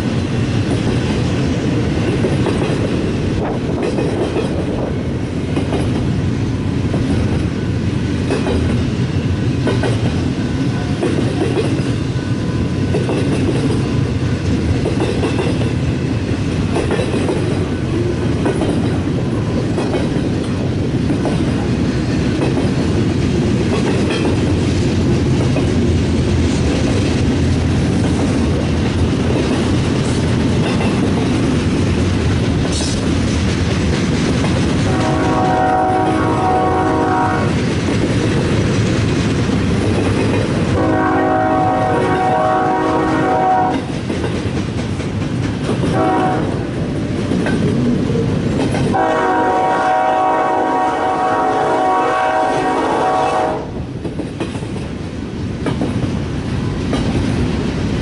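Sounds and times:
freight train wheels rumbling: 0:00.0 - 0:58.0
wheel clacks on rail: 0:02.0 - 0:06.2, 0:06.8 - 0:08.9, 0:09.5 - 0:12.1, 0:12.9 - 0:25.8, 0:26.6 - 0:50.3, 0:54.0 - 0:57.6
locomotive horn: 0:34.8 - 0:37.6, 0:40.7 - 0:43.9, 0:45.9 - 0:46.6, 0:48.9 - 0:53.8.

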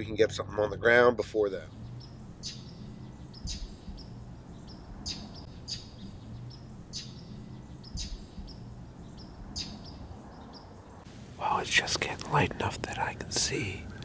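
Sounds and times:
small birds chipping: 0:01.4 - 0:14.0
faint bird calls: 0:01.7 - 0:11.1.

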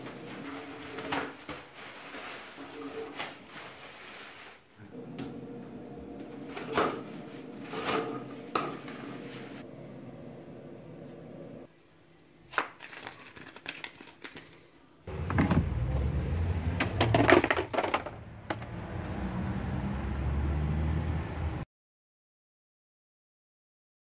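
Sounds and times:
paper and cardboard crinkling: 0:00.2 - 0:04.7, 0:12.5 - 0:14.6.

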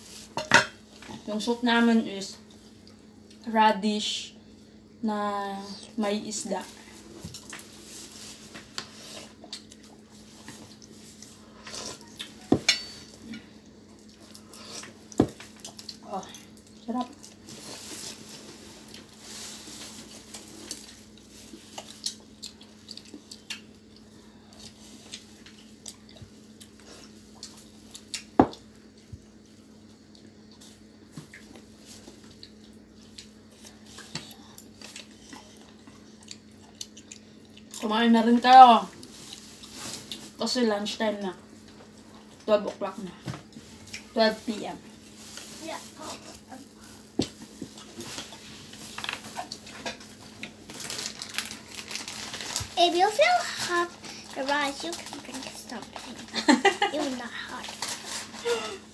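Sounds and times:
faint steady hum: 0:00.0 - 0:58.9
utensils clinking against bowls: 0:12.4 - 0:13.2.

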